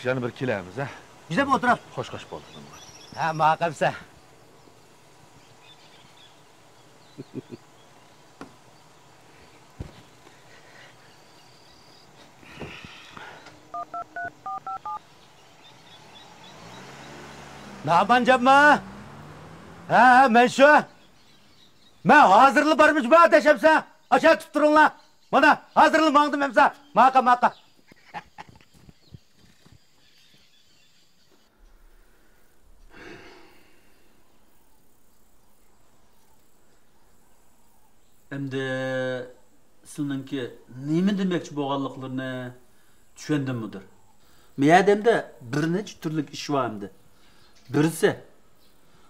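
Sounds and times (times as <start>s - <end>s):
footsteps on dirt path: 9.4s - 10.4s
phone keypad two-tone beeps: 13.8s - 15.0s
person exhaling: 31.8s - 34.2s.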